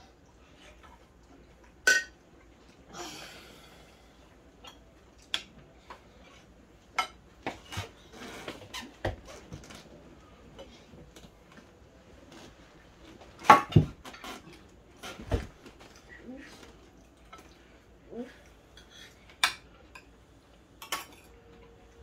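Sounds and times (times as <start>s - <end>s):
cutlery clinking on plates: 20.8s - 21.4s.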